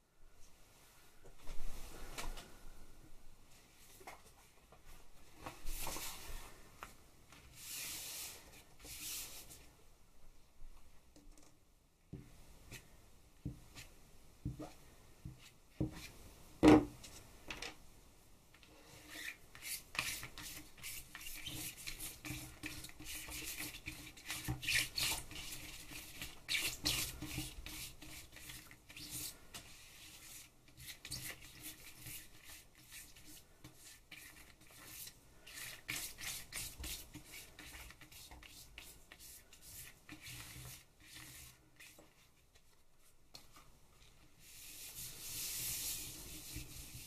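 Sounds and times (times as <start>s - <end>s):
tool spreading paint on plastic: 19.1s - 42.6s, 44.4s - 47.0s.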